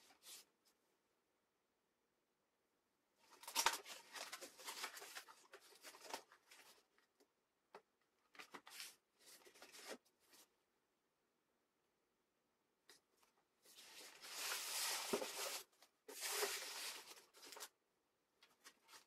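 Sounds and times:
paper manual rustling: 0:03.3 - 0:07.0, 0:08.3 - 0:10.5, 0:13.7 - 0:17.8
cardboard scraping and rustling: 0:13.7 - 0:17.7.

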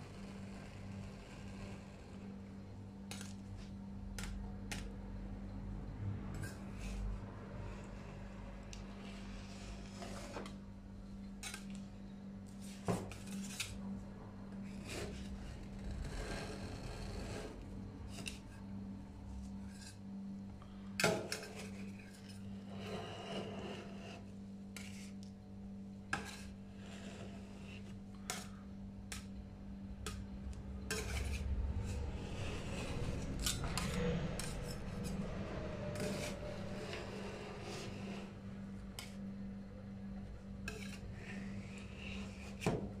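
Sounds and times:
steady low hum: 0:00.0 - 0:43.0
metal spatula scraping plate: 0:09.0 - 0:10.6, 0:12.6 - 0:13.8, 0:14.6 - 0:18.4, 0:21.2 - 0:25.1, 0:26.1 - 0:29.2, 0:30.8 - 0:38.4, 0:40.6 - 0:42.7.

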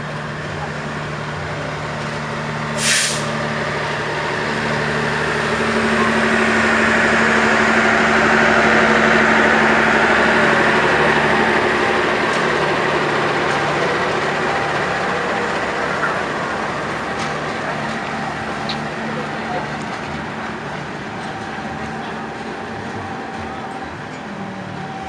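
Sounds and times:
diesel locomotive engine drone: 0:00.0 - 0:25.0
short sharp hiss: 0:02.8 - 0:03.3.

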